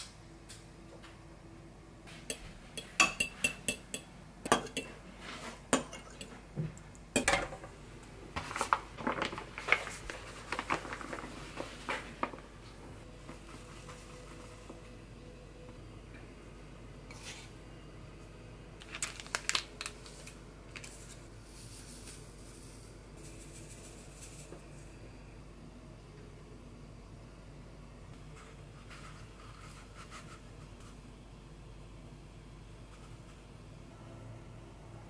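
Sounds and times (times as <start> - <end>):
bowls and utensil clinking: 2.1 - 5.0, 5.6 - 6.4.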